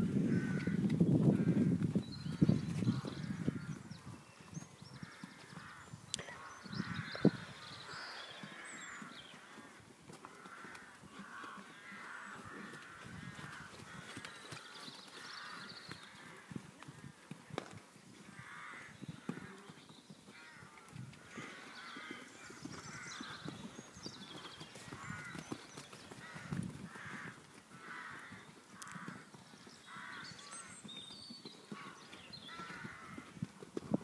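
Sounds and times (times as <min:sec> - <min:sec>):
horse hoofbeats on sand: 0:00.0 - 0:06.0, 0:06.8 - 0:34.0
crows cawing: 0:00.3 - 0:00.8, 0:05.1 - 0:16.5, 0:18.4 - 0:19.6, 0:20.3 - 0:23.4, 0:24.9 - 0:25.5, 0:26.2 - 0:29.3, 0:29.9 - 0:30.7, 0:31.8 - 0:33.3.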